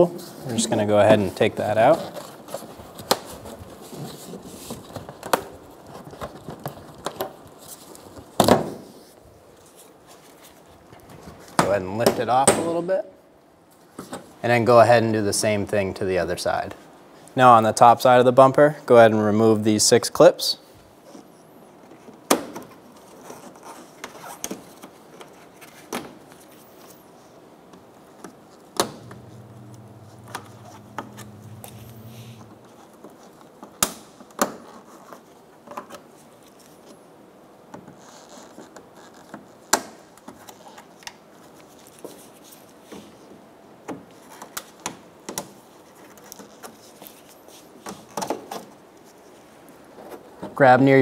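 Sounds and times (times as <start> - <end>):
low steady hum: 28.8 - 32.9.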